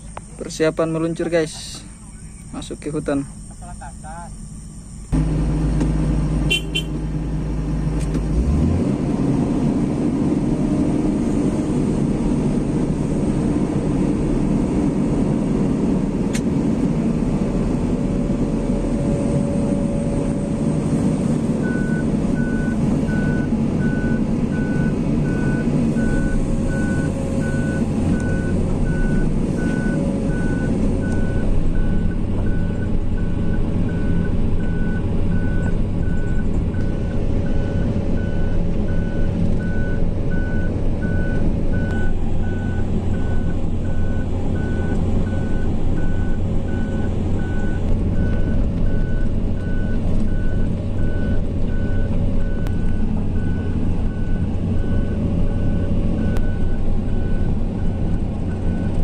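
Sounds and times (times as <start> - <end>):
electronic warning beep: 0.0 - 5.2, 21.6 - 59.0
vehicle engine running: 0.0 - 59.0.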